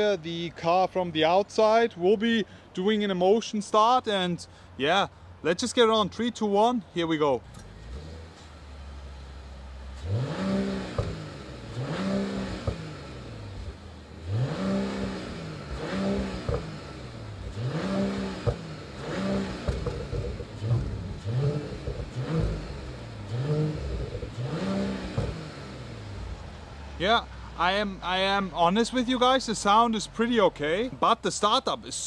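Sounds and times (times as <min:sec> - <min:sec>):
car engine revving: 0:07.4 - 0:30.3.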